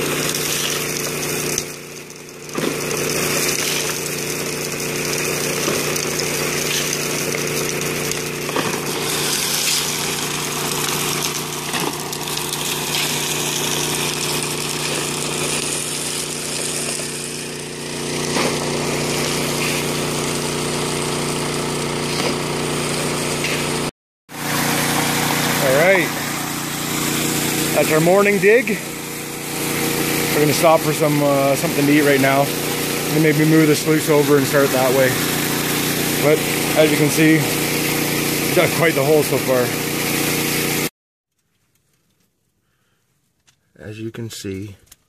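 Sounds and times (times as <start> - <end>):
water rushing: 0.0 - 20.8, 24.3 - 40.8
small gasoline engine running: 0.0 - 40.9.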